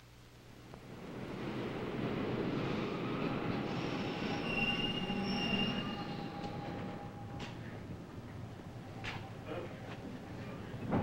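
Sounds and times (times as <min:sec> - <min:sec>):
subway train running: 0:00.8 - 0:11.0
wheels squealing on rails: 0:02.3 - 0:07.8.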